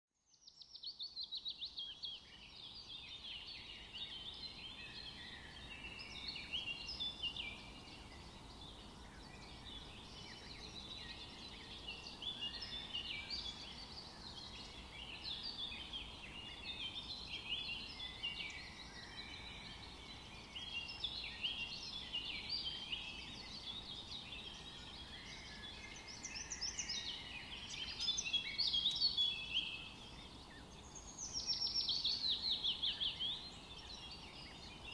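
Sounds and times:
small birds chirping and twittering: 0.1s - 34.9s.

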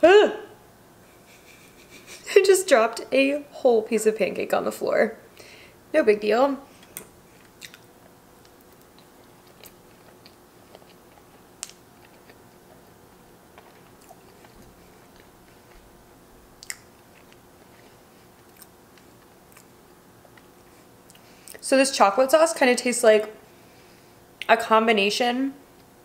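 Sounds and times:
soft chewing: 6.7s - 21.6s
mouth clicks and smacks: 7.0s - 7.9s, 16.6s - 16.9s.

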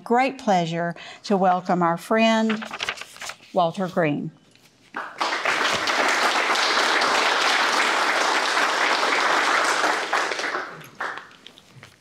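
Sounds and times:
audience applauding: 5.0s - 11.5s.

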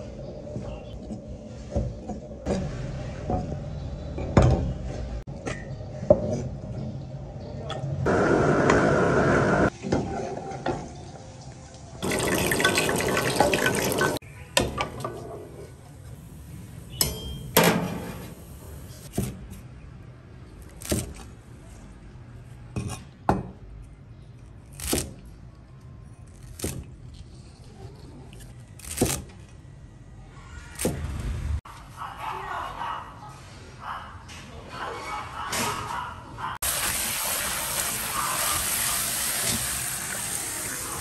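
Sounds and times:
running water: 12.0s - 14.2s, 36.6s - 41.0s.

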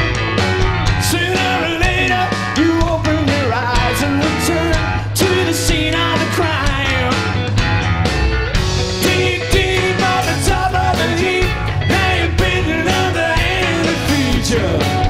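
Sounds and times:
rock band playing live: 0.0s - 15.0s
male lead vocal: 1.0s - 7.4s, 8.9s - 15.0s.

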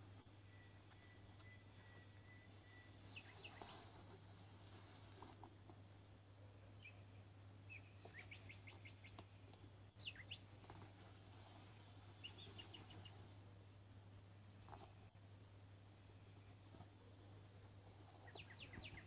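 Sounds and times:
faint steady hum: 0.0s - 19.0s
faint high chirps: 0.1s - 5.0s, 6.5s - 10.9s, 11.5s - 13.5s, 16.0s - 19.0s.

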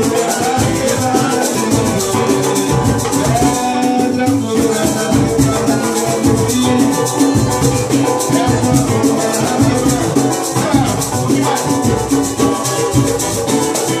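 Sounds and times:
cavaquinho strumming: 0.0s - 14.0s
fast shaker rhythm: 0.0s - 14.0s
low hand drum beats: 0.0s - 14.0s.

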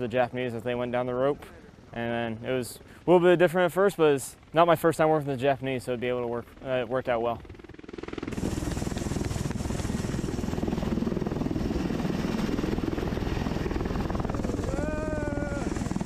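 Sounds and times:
helicopter rotor chop: 0.0s - 16.0s
person shouting: 14.6s - 15.9s.

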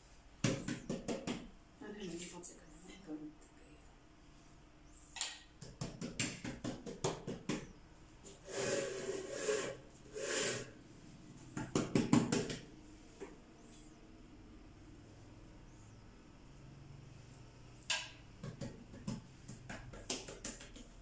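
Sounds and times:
dough rubbing on wooden board: 8.4s - 10.7s.

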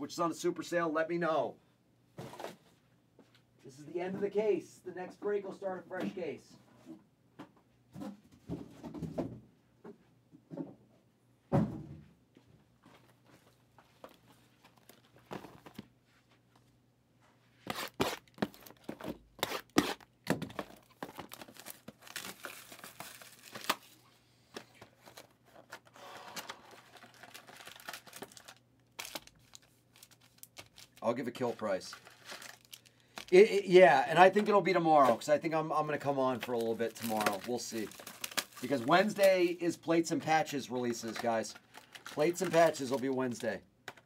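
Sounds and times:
plastic wrap crinkling and tearing: 17.7s - 24.0s, 24.9s - 33.6s, 36.3s - 39.5s, 40.8s - 43.6s.

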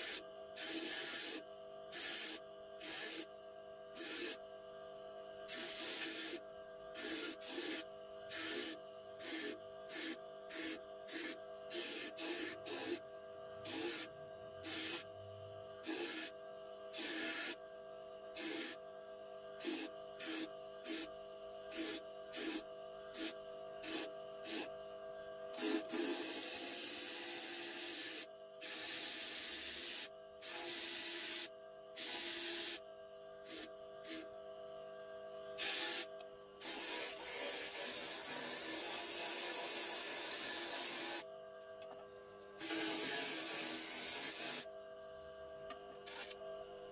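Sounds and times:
wood rasping on sanding disc: 36.6s - 41.2s.

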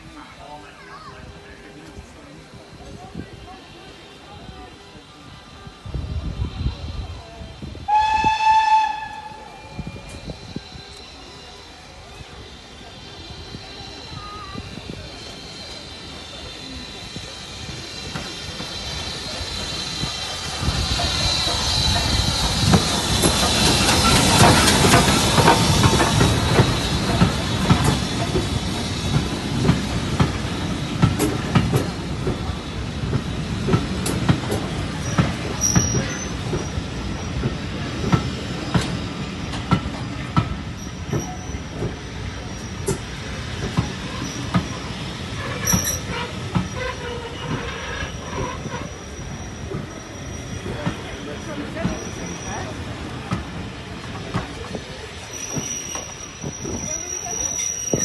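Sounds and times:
steam hissing: 1.2s - 58.0s
train brakes squealing: 3.0s - 58.0s
train wheels clicking over rail joints: 14.6s - 58.0s.

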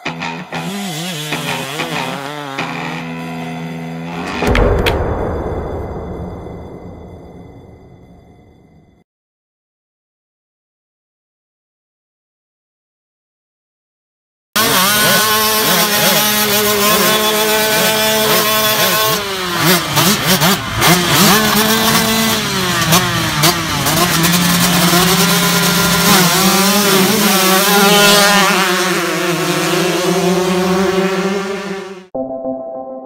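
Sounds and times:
dirt bike engines idling and revving: 0.0s - 4.2s, 14.6s - 32.0s.

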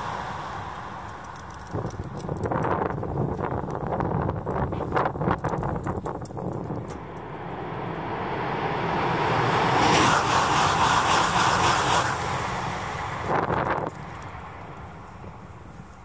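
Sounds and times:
high-speed train rushing past: 0.0s - 2.2s, 6.8s - 15.7s.

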